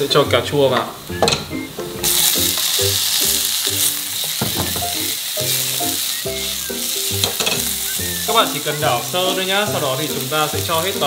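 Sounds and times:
tomatoes sizzling in oil: 0.0 - 11.0.

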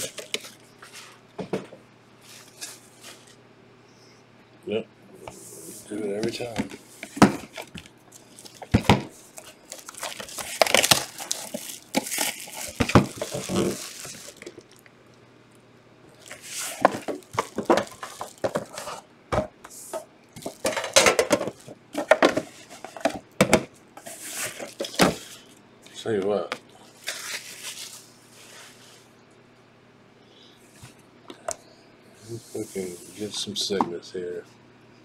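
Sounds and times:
plastic wrap crinkling: 0.0 - 1.3, 6.2 - 14.9, 16.1 - 19.1, 20.3 - 22.1, 26.8 - 29.0.

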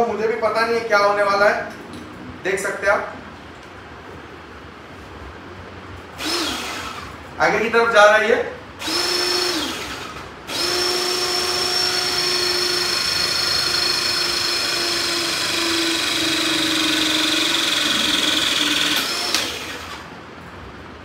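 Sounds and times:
hydraulic pump motor whining: 6.2 - 7.2, 8.8 - 20.1.

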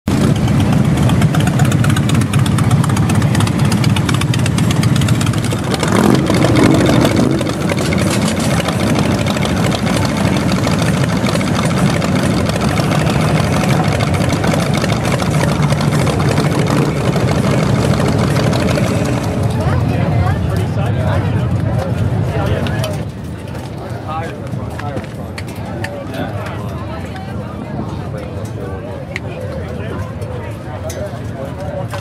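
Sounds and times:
motorcycle engine revving: 0.1 - 20.6, 21.5 - 23.1
motorcycle engines rumbling: 0.1 - 32.0.

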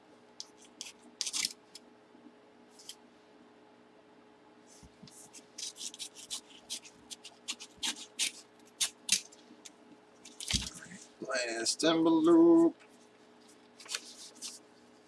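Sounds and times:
paper envelope crinkling and tearing: 0.6 - 1.6, 5.2 - 9.4, 10.2 - 11.0, 13.5 - 14.6.

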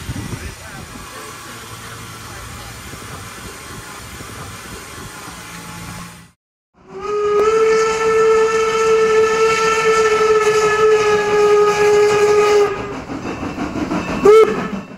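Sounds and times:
steam hissing: 0.0 - 7.6, 9.0 - 14.9
steam locomotive whistle: 6.8 - 13.0, 14.2 - 14.9.

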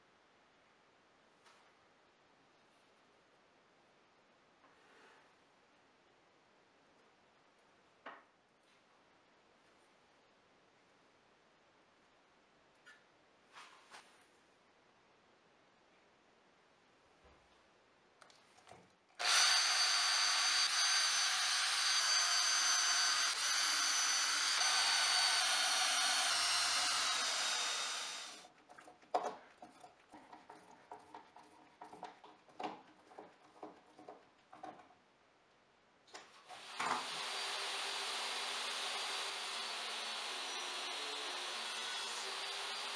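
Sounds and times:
cordless drill whining: 19.2 - 28.4, 36.5 - 42.9
table saw motor running: 19.2 - 28.4.

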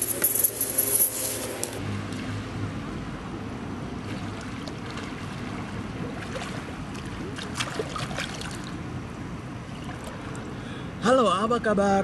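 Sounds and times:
swimmer splashing water: 3.5 - 8.9.

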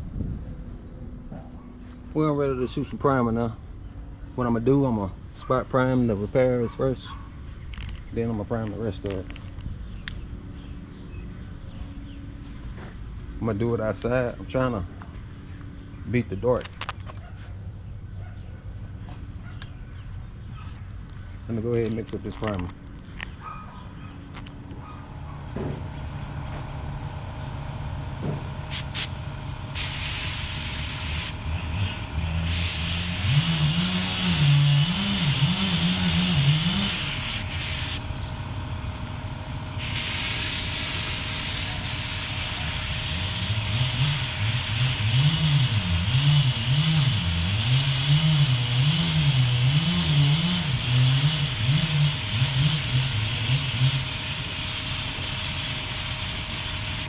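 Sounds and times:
low wavering hum: 0.0 - 57.0
spray gun hissing: 28.7 - 29.1, 29.8 - 31.4, 32.5 - 38.0, 39.8 - 57.0.

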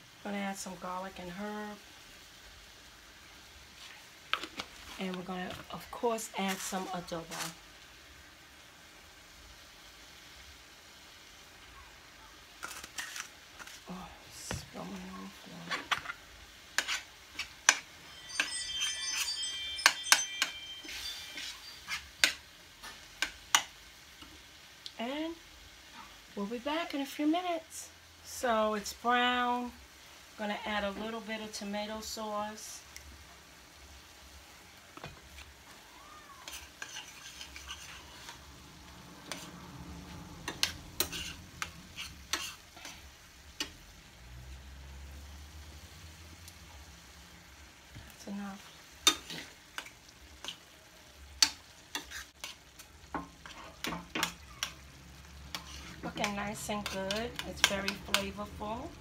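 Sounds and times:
spoon scraping a skillet: 3.7 - 7.6, 12.6 - 24.4, 36.4 - 43.8, 48.6 - 58.8
brief ringing tone: 18.0 - 22.0.

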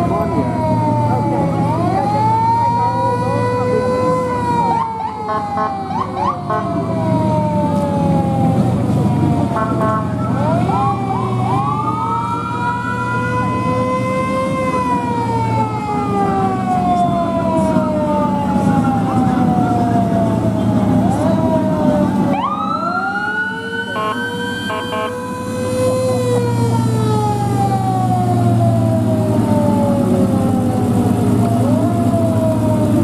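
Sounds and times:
low engine rumble: 0.0 - 24.5, 25.2 - 33.0
emergency sirens wailing: 0.0 - 33.0
siren whooping yelps: 0.1 - 6.8, 21.0 - 26.5.

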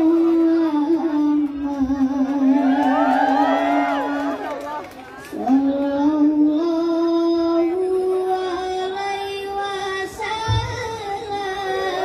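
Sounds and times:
boy singing devotional chant: 0.0 - 2.5, 5.3 - 12.0.

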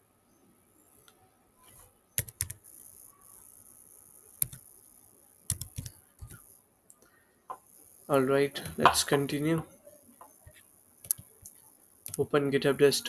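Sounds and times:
keyboard keystroke clicks: 2.2 - 2.6, 5.5 - 6.4.

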